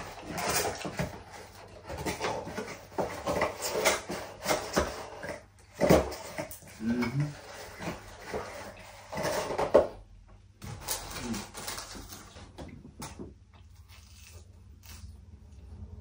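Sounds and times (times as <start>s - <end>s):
packaging rustling and clattering: 0.0s - 10.0s, 10.6s - 13.2s.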